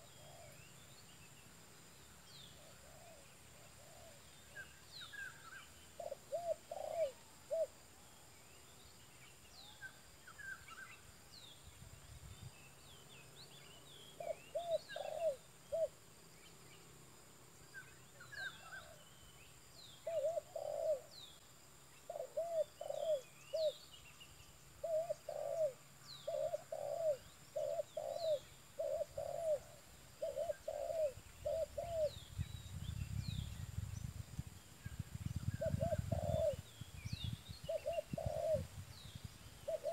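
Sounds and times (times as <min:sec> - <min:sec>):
dove cooing: 0:00.0 - 0:00.6, 0:02.6 - 0:04.2, 0:06.0 - 0:07.8, 0:14.2 - 0:15.9, 0:20.0 - 0:21.1, 0:22.1 - 0:23.8, 0:24.8 - 0:32.2, 0:35.6 - 0:36.7, 0:37.7 - 0:38.8, 0:39.6 - 0:39.9
small birds chirping: 0:00.0 - 0:17.0, 0:17.6 - 0:39.9.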